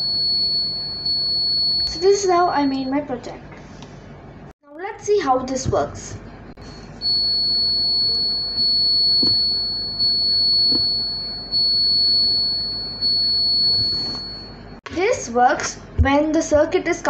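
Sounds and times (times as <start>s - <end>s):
electronic buzzer tone: 0.0s - 2.9s, 6.7s - 14.6s.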